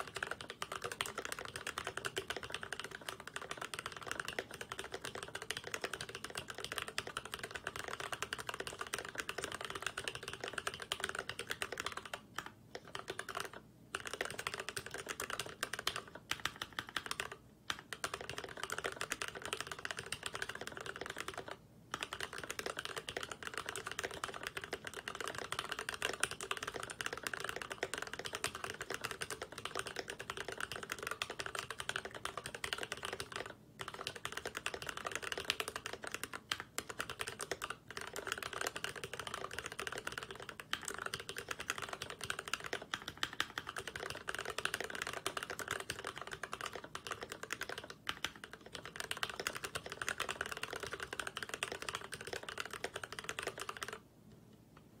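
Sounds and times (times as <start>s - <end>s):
fast mechanical keyboard typing: 0.0s - 54.0s.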